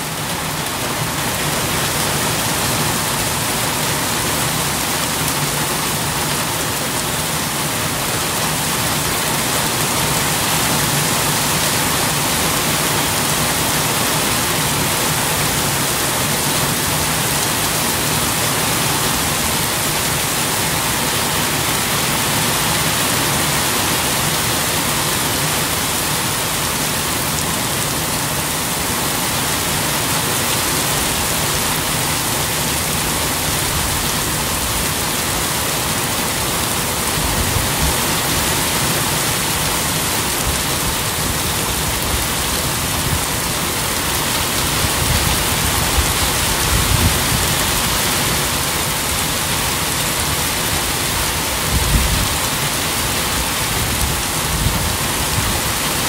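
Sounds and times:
steady rain pouring: 0:00.0 - 0:56.0.

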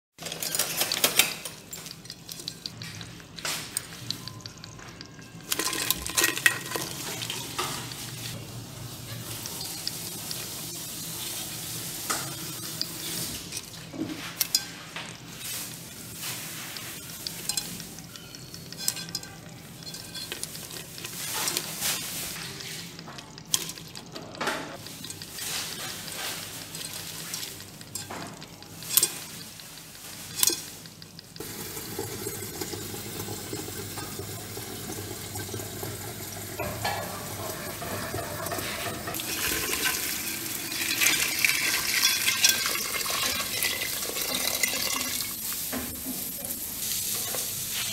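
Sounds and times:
crabs scrabbling and clicking: 0:00.2 - 0:31.5
tap water running into kettle: 0:02.3 - 0:08.4, 0:31.3 - 0:46.7.

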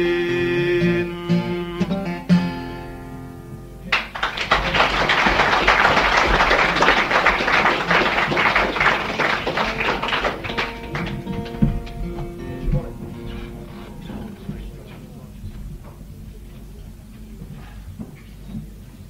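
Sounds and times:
acoustic guitar chord ringing: 0:00.0 - 0:04.2, 0:05.4 - 0:15.3
audience applause: 0:03.9 - 0:14.7.

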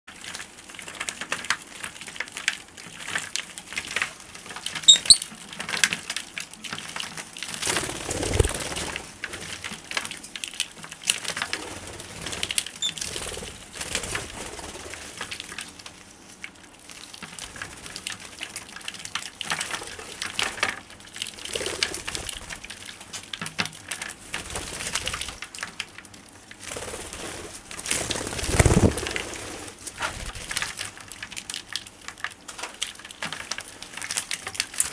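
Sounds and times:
bird chirps: 0:04.9 - 0:05.2
wings flapping: 0:07.5 - 0:10.1, 0:11.0 - 0:15.7, 0:21.2 - 0:22.7, 0:24.2 - 0:25.4, 0:26.6 - 0:30.9.

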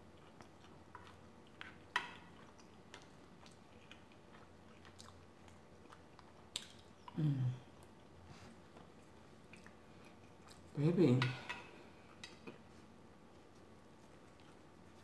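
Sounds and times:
close chewing: 0:00.0 - 0:10.8, 0:11.9 - 0:15.0
low voice hum: 0:07.1 - 0:07.8.

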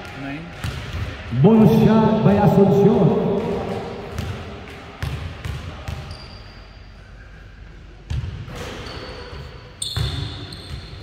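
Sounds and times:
basketball bouncing on hardwood: 0:03.3 - 0:04.4.

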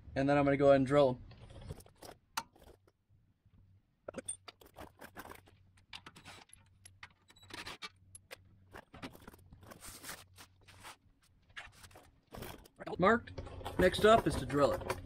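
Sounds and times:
tools clicking and tapping: 0:01.6 - 0:03.0, 0:04.1 - 0:09.8, 0:12.3 - 0:15.0
scraping rustles: 0:08.6 - 0:15.0.

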